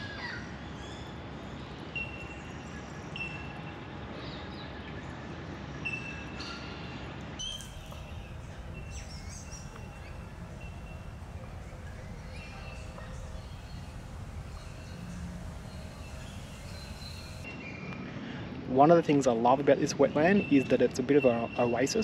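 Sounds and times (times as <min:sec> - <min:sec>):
birds whistling and chirping: 0:07.4 - 0:17.4
wetland background noise: 0:07.4 - 0:17.5.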